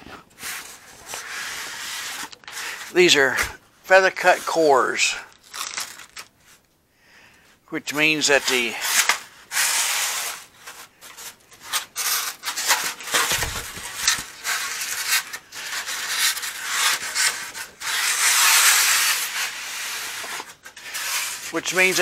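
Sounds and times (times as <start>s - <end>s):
foam rubbing and scraping: 0.3s - 5.8s, 8.2s - 22.0s.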